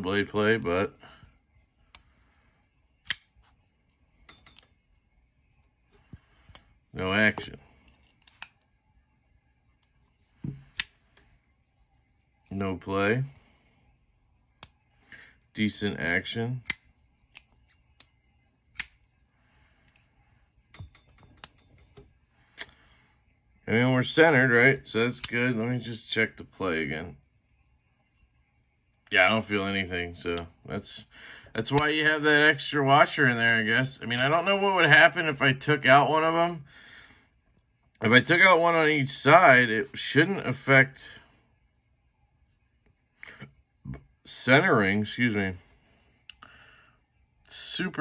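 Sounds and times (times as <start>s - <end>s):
folding knife blade clicking: 3.0s - 3.2s
folding knife metallic clicks: 3.0s - 3.3s, 16.6s - 18.1s.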